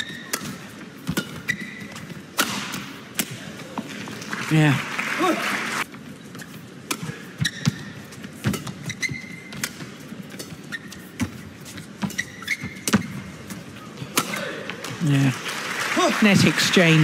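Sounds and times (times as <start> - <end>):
rackets hitting shuttlecock: 0.0 - 3.8, 6.8 - 15.0
shoes squeaking on court: 0.0 - 4.2, 5.8 - 14.8.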